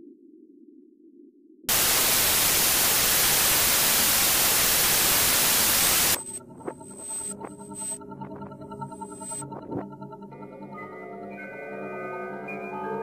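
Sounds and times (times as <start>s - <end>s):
white-noise static burst: 1.7s - 6.3s, 7.0s - 8.0s
ambient synthesizer music: 6.2s - 13.0s.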